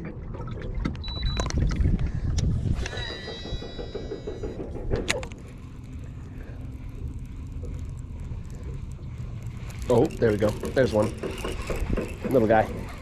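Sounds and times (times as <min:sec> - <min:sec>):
fishing reel electronic whine: 0:02.7 - 0:13.0
fishing reel winding: 0:05.5 - 0:13.0.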